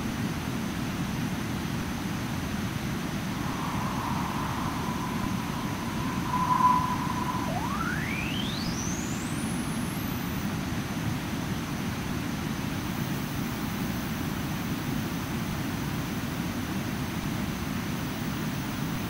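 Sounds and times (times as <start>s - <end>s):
synthesized jet engine noise: 3.3s - 9.8s
rising synthesized whistle: 3.3s - 10.0s.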